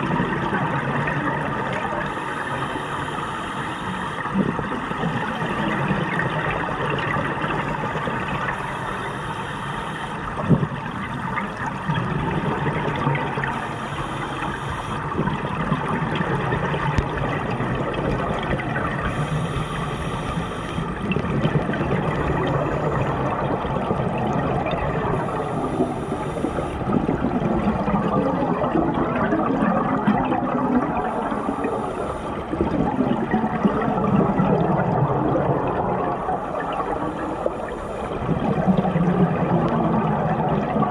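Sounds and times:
exhaled bubbles gurgling: 0.0s - 40.9s
regulator inhale hiss: 2.0s - 5.0s, 8.4s - 10.4s, 13.4s - 15.1s, 19.0s - 21.0s, 25.1s - 26.9s, 31.0s - 32.6s, 36.4s - 38.3s.

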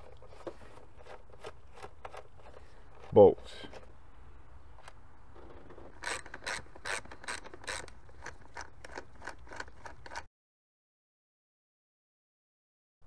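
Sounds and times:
hand ratchet clicking: 6.0s - 10.2s.

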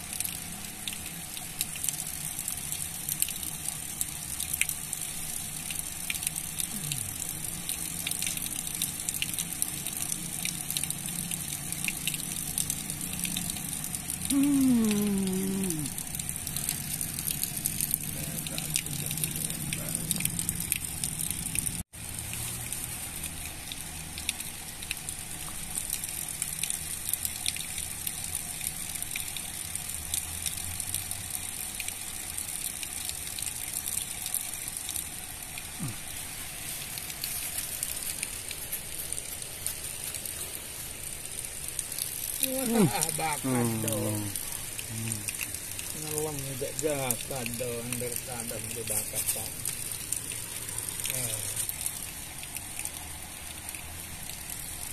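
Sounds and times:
water rushing from dam spillway: 41.3s - 53.8s.

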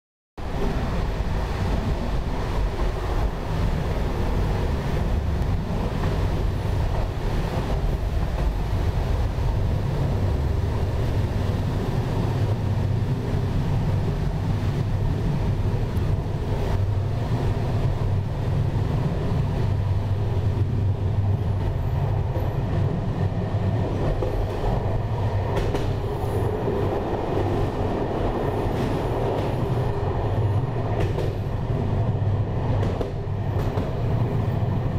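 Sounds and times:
train wheels rumbling on rails: 0.4s - 34.9s
faint rail joint clicks: 25.6s - 26.0s.

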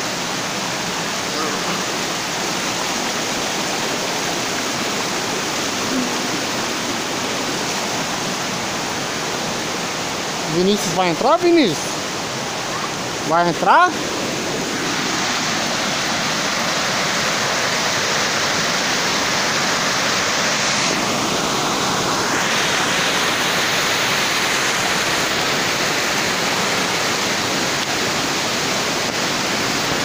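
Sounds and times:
waterfall roar: 0.0s - 30.0s.

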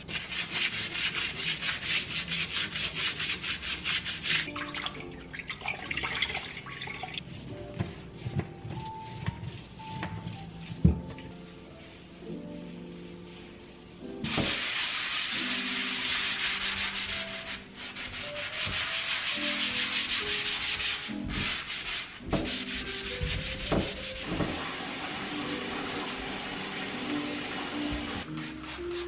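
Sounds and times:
sponge scrubbing hard surfaces: 0.0s - 5.0s, 14.2s - 29.0s.

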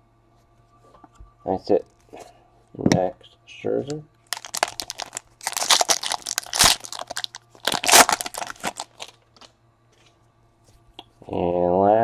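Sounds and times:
foil wrapper tearing and crinkling: 4.3s - 9.5s.

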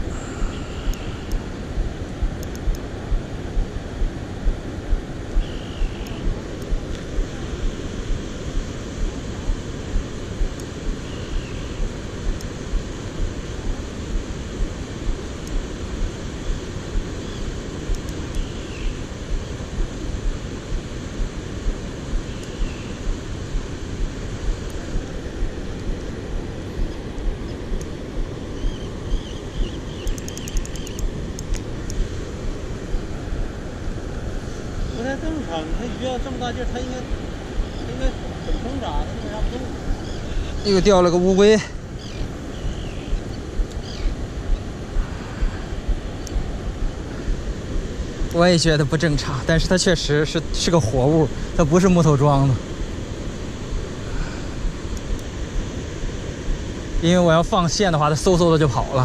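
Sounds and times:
wind on microphone: 0.0s - 59.0s.

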